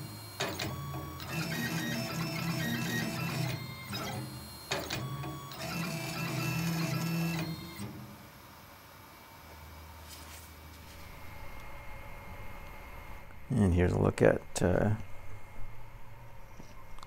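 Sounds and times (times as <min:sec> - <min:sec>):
low hum: 0:10.8 - 0:17.0.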